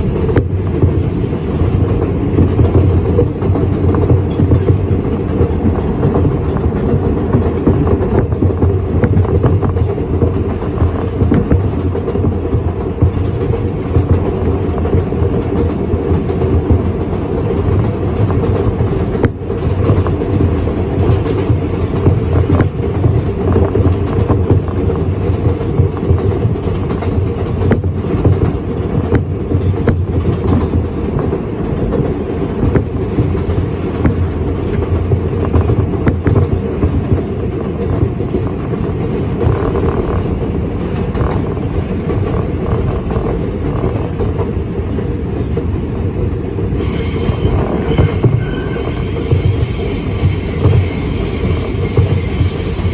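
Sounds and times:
subway car rumbling: 0.0 - 52.9
wheels clacking over rail joints: 0.0 - 52.9
high wheel squeal: 46.8 - 52.9.

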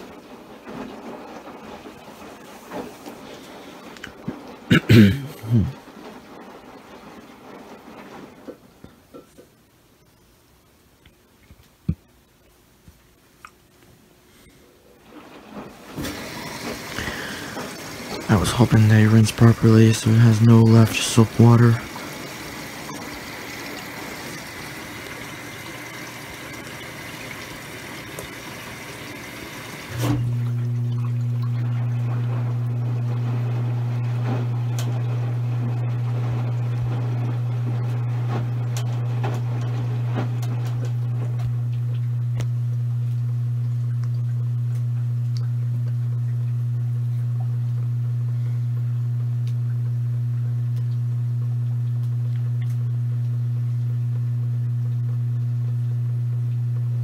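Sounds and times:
washing machine water running: 0.0 - 9.2, 14.8 - 57.0
loud steady low hum: 16.9 - 23.7, 29.0 - 57.0.

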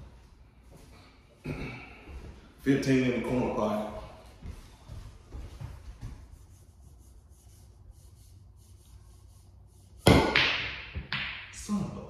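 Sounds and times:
pool cue striking ball: 10.0 - 11.6
pool balls knocking: 10.1 - 11.6.

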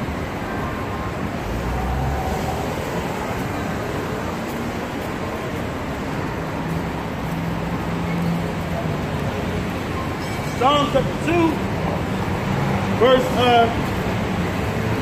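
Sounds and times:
passing cars and bus: 0.0 - 15.0.

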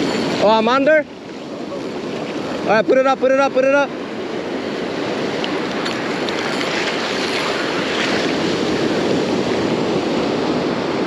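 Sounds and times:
ocean surf washing on beach: 0.0 - 11.0
wind buffeting microphone: 4.0 - 11.0.

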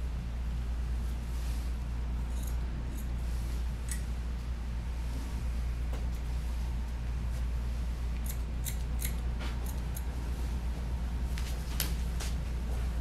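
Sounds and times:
steady low hum: 0.0 - 13.0
scissors snipping hair: 2.3 - 3.1, 8.2 - 10.1.

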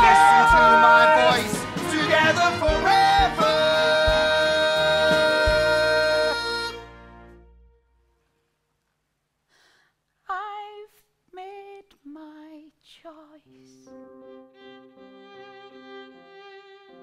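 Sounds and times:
woman singing unaccompanied: 10.2 - 13.8.

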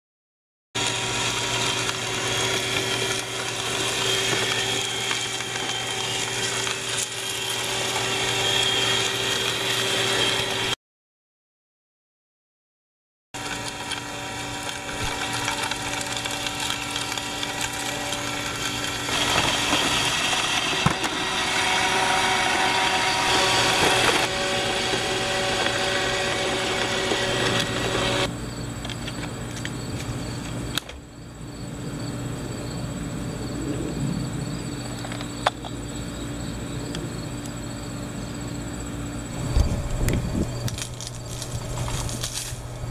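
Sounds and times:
robot vacuum whirring: 0.8 - 10.8, 13.4 - 28.3.

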